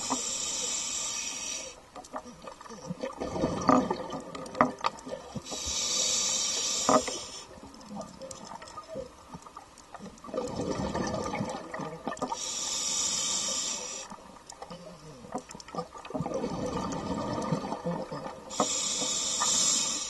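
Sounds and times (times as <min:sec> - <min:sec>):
regulator breathing hiss: 0:00.0 - 0:01.8, 0:05.4 - 0:07.6, 0:12.3 - 0:14.2, 0:18.5 - 0:20.0
gurgling exhaled bubbles: 0:02.3 - 0:05.3, 0:10.2 - 0:12.2, 0:15.7 - 0:18.6.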